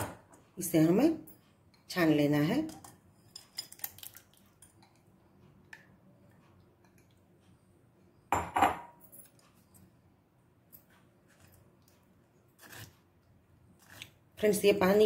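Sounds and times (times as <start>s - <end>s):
kitchenware clattering: 8.3s - 9.2s.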